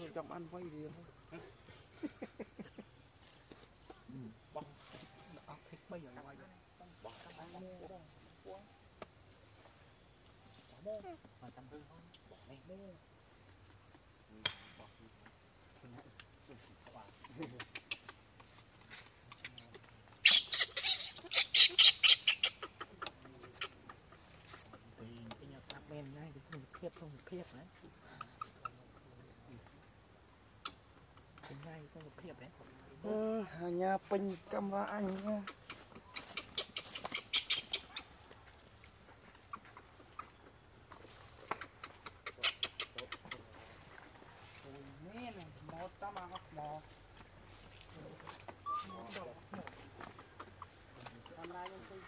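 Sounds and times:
insects droning: 0:00.0 - 0:52.0
animal calls rising and falling: 0:48.6 - 0:49.2.

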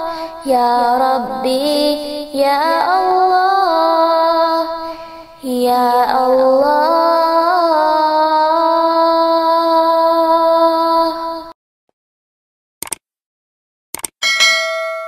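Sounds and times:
woman singing without words: 0:00.0 - 0:11.5.

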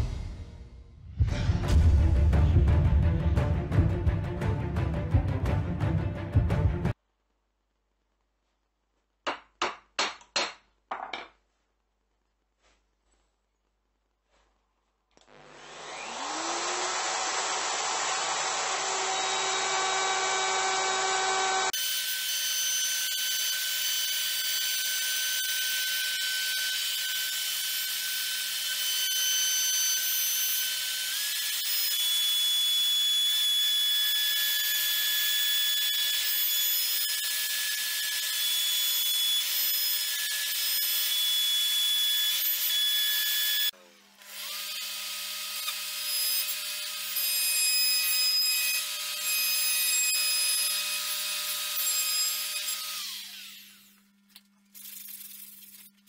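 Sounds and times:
router whining: 0:15.1 - 0:54.0.

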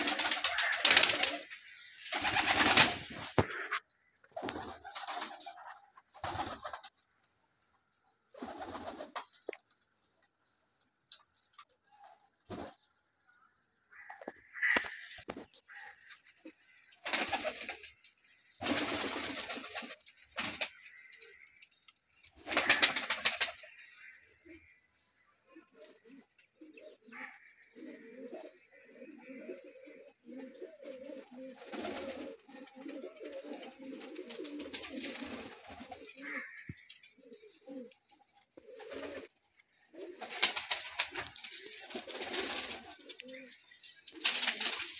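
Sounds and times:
pigeon wings flapping: 0:00.0 - 0:01.5, 0:02.1 - 0:03.4, 0:18.6 - 0:20.7, 0:22.4 - 0:23.6, 0:40.2 - 0:43.0, 0:44.2 - 0:44.9
pigeons cooing: 0:25.6 - 0:43.6.

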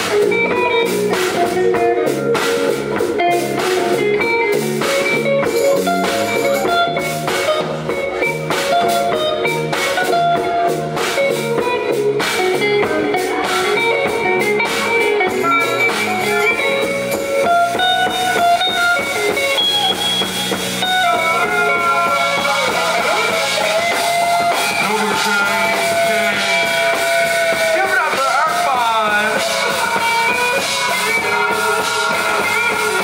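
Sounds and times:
electric guitar solo: 0:00.0 - 0:33.0.

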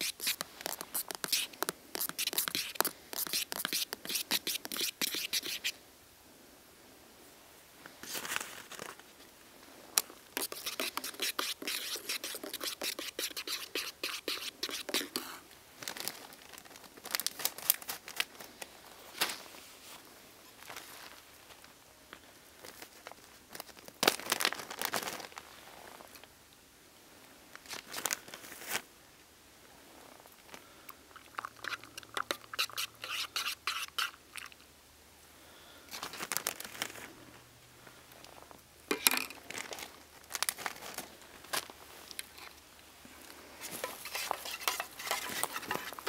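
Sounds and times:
plastic bag crinkling: 0:00.0 - 0:05.6, 0:10.4 - 0:18.7, 0:22.6 - 0:25.5, 0:35.9 - 0:37.1, 0:38.3 - 0:42.5.

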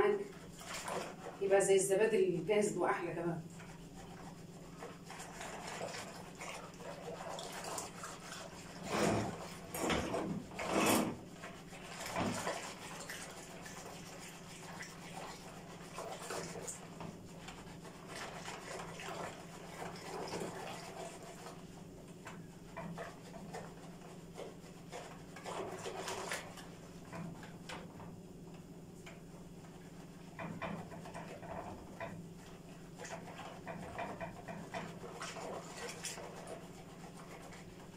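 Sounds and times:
whisk swishing in bowl: 0:00.0 - 0:27.9, 0:29.0 - 0:37.9.

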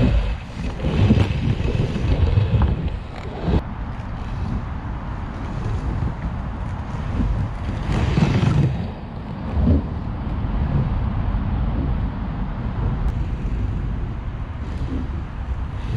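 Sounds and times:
wind buffeting microphone: 0:00.0 - 0:15.9
scooter wheels rolling: 0:05.3 - 0:11.0.

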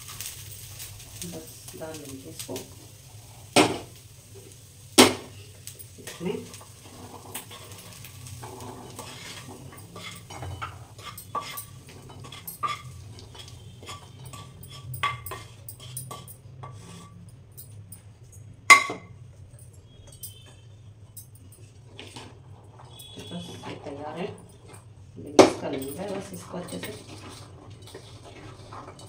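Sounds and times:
wooden spatula scraping a pan: 0:05.3 - 0:17.3, 0:21.6 - 0:25.0, 0:25.6 - 0:29.0
steel bowl ringing: 0:07.3 - 0:16.4, 0:18.7 - 0:21.7, 0:22.6 - 0:24.8, 0:25.7 - 0:27.2.

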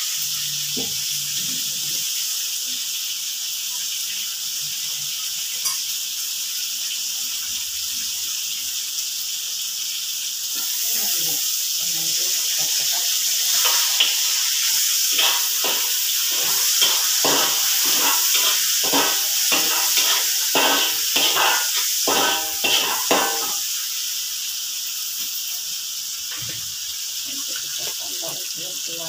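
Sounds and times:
vegetables sizzling in a wok: 0:00.0 - 0:29.0
metal spatula scraping a wok: 0:13.4 - 0:23.7.

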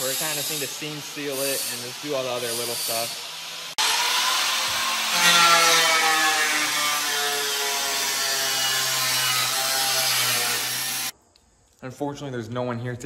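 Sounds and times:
grinder cutting sheet metal: 0:00.0 - 0:11.1.

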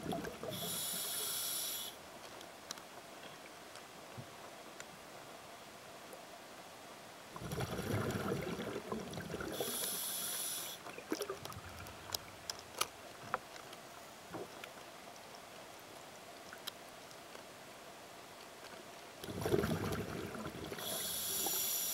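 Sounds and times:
exhaled bubbles rumbling: 0:00.0 - 0:00.6, 0:07.4 - 0:09.7, 0:19.2 - 0:21.0
regulator inhale hiss: 0:00.4 - 0:02.0, 0:09.5 - 0:10.9, 0:20.7 - 0:21.9.

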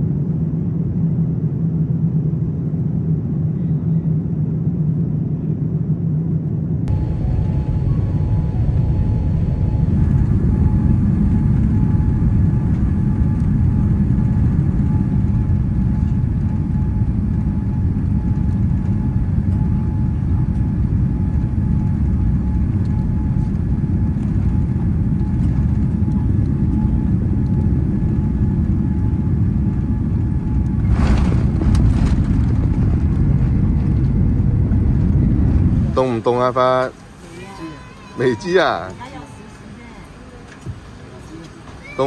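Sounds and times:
airliner cabin rumble: 0:00.0 - 0:42.0.

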